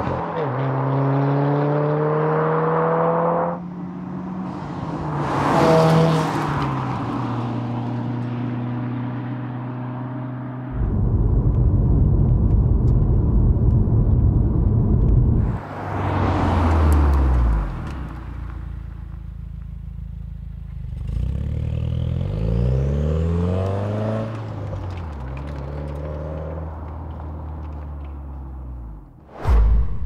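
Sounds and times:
car accelerating through gears: 0.4 - 3.6.

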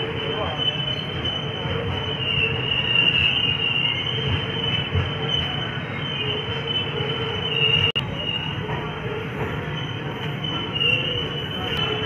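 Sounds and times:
low rumble of train coaches: 0.0 - 12.0
train wheels squealing: 0.0 - 12.0.

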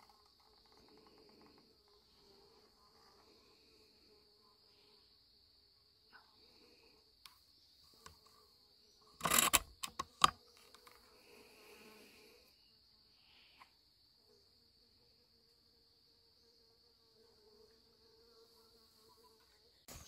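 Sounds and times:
night insects chirping: 0.0 - 20.0
clicks and rustling: 9.2 - 11.0.

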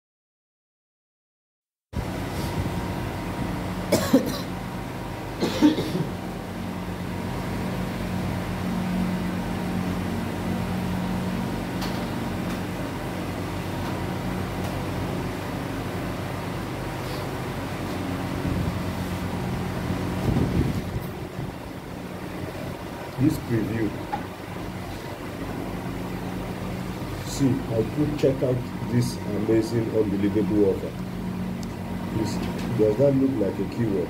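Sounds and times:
low hum: 2.0 - 34.0
person coughing: 3.9 - 4.6, 5.4 - 6.2.

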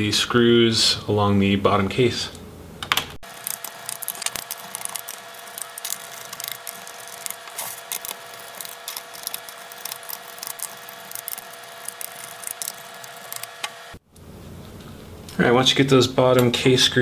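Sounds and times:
steady hum: 2.6 - 15.4.

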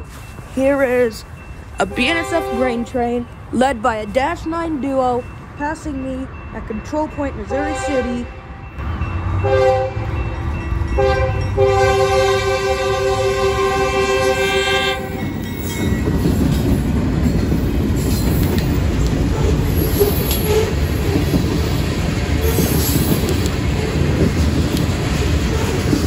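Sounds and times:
freight train rumbling past: 0.0 - 26.0
locomotive air horn chord: 1.9 - 2.9, 7.5 - 8.6, 9.4 - 10.1, 11.0 - 15.2.

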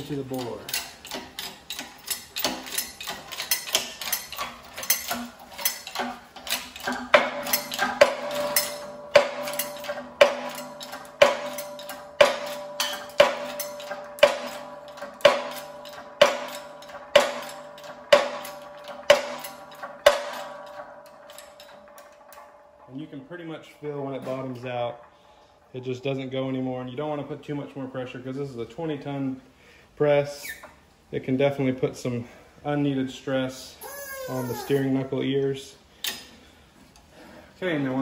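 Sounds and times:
steady ringing hum: 0.0 - 29.9.

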